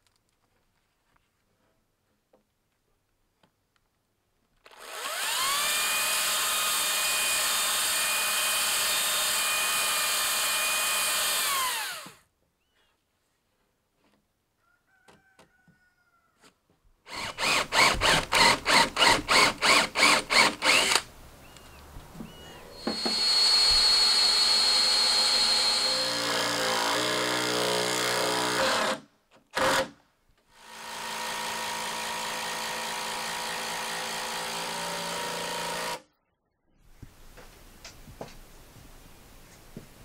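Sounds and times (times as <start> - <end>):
power drill running: 4.7 - 12.2, 17.1 - 21.1, 22.7 - 29.0, 30.6 - 36.0.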